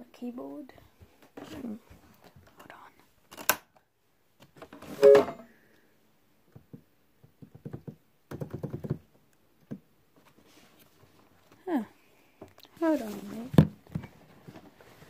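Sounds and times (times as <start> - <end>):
brief two-tone sound: 5.0 - 5.4.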